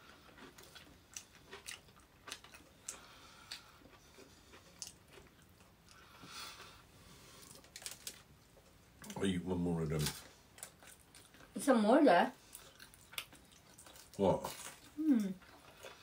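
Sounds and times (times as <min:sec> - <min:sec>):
chewing and biting food: 0:00.0 - 0:06.7, 0:10.0 - 0:11.6, 0:12.4 - 0:16.0.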